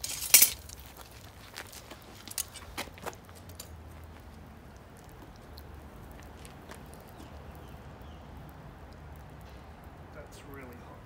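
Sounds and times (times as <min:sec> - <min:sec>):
metal tongs clinking: 0:00.0 - 0:00.8.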